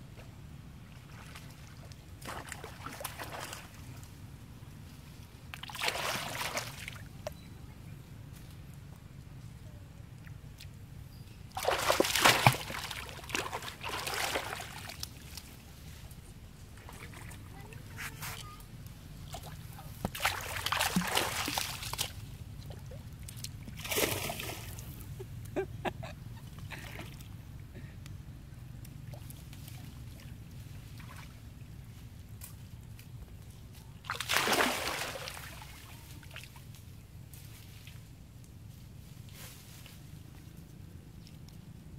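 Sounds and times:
water splashing: 5.6 - 7.1, 11.6 - 15.5, 19.2 - 25.0, 34.0 - 36.4.

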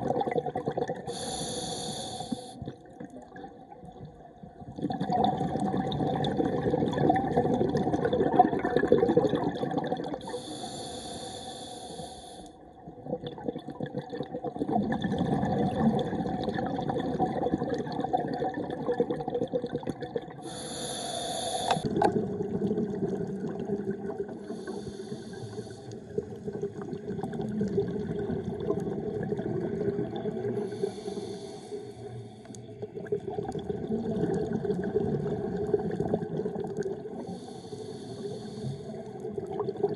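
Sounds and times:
bubbling crackling exhales: 0.0 - 1.7, 4.7 - 10.5, 13.0 - 31.4, 33.0 - 39.9
hissing regulator inhales: 1.1 - 2.6, 10.2 - 12.6, 20.4 - 21.9, 24.4 - 26.0, 30.6 - 32.6, 37.2 - 39.0.

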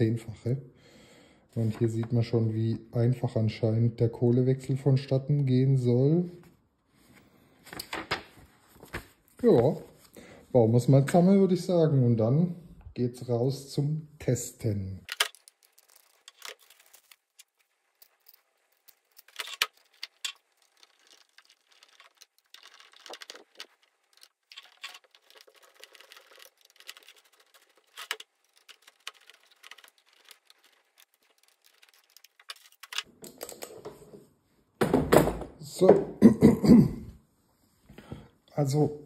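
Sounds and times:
plastic and metal parts clicking: 15.1 - 33.9.

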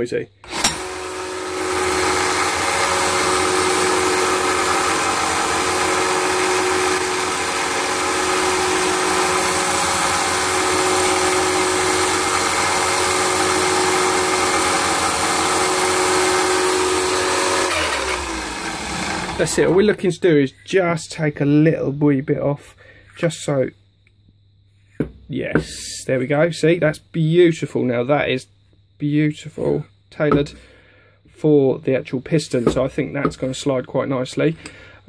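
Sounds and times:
belt sander running: 0.4 - 20.0.

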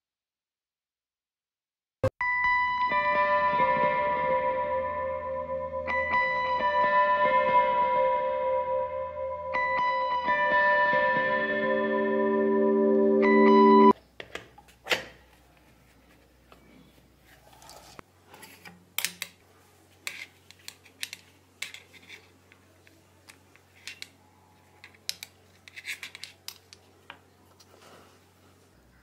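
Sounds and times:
music chord: 2.2 - 13.9
plastic parts clicking and knocking: 18.4 - 19.4, 20.0 - 27.3.

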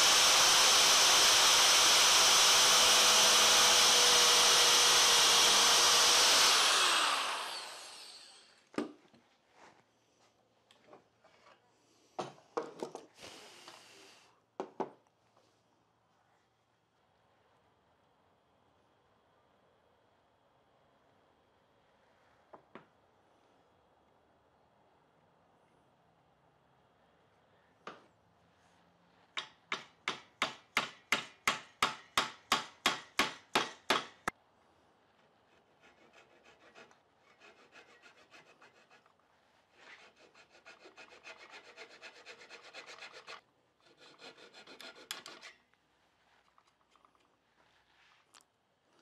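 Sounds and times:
hammer tapping wooden dowel: 29.4 - 34.3.

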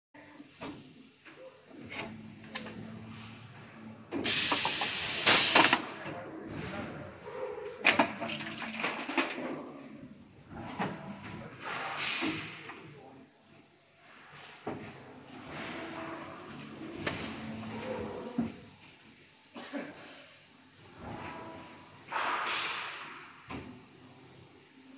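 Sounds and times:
compressed air hissing: 4.2 - 5.8, 22.0 - 23.5.

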